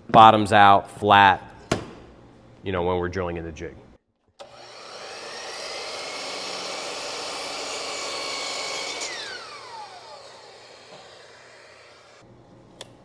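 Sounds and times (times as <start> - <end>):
miter saw cutting wood: 4.4 - 12.2.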